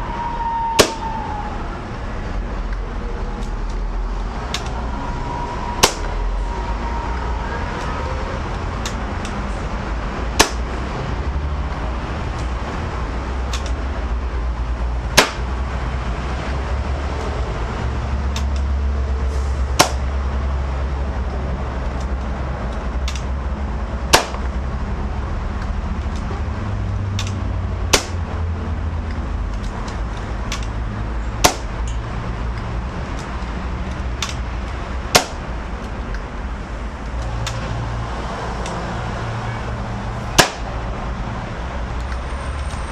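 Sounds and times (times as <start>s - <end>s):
air rifle shots: 0.8s - 1.2s, 10.4s - 10.7s, 15.1s - 15.5s, 24.1s - 24.5s, 27.9s - 28.2s, 31.4s - 31.8s, 35.1s - 35.5s, 40.3s - 40.7s.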